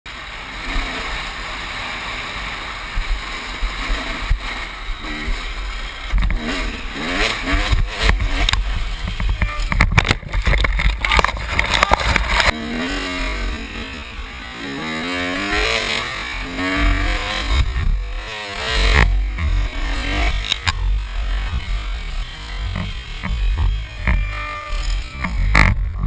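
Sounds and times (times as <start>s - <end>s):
motocross bike engine revving: 0.1s - 26.0s
knocks and rattles over bumps: 6.0s - 12.7s, 16.9s - 24.4s.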